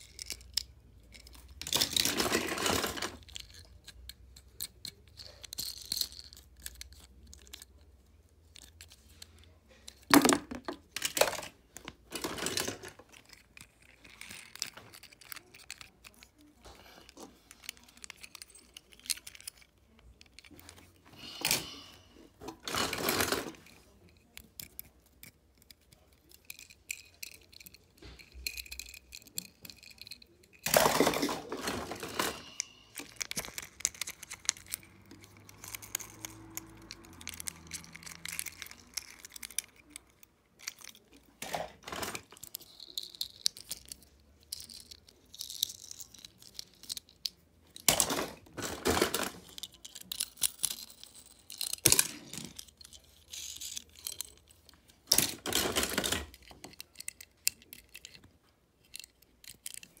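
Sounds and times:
toy cars clattering in plastic bin: 1.4 - 3.6, 10.0 - 16.2, 22.4 - 23.8, 30.6 - 40.0, 40.6 - 43.9, 47.8 - 58.2.

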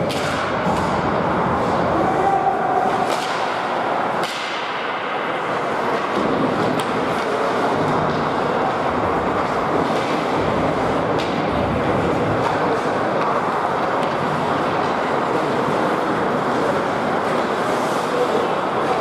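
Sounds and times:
stick and puck knocks: 0.0 - 1.0, 3.0 - 5.2, 5.8 - 7.4, 11.1 - 11.6, 13.2 - 15.0
crowd noise: 0.0 - 19.0.

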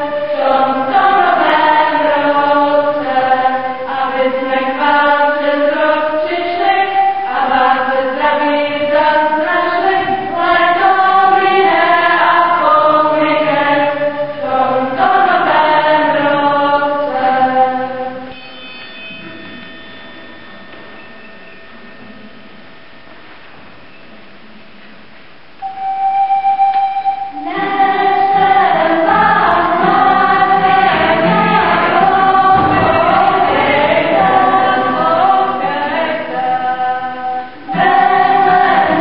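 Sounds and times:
children's choir singing: 0.0 - 19.7, 25.6 - 39.0.

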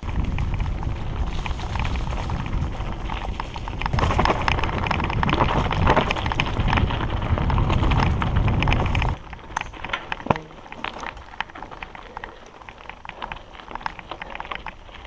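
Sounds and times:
bike rattling and clicking: 0.0 - 15.0
tyres on dirt and leaves: 0.0 - 15.0
wind rumbling on microphone: 0.0 - 15.0.

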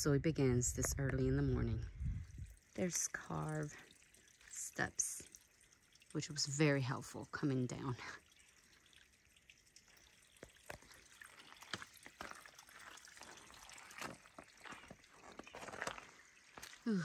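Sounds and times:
footsteps on stone steps: 13.2 - 16.8.

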